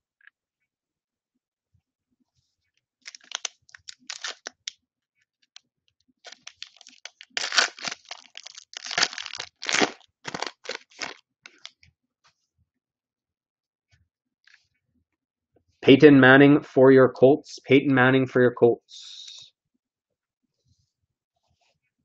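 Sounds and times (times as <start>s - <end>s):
foil wrapper tearing and crinkling: 3.0s - 4.7s, 6.2s - 11.7s.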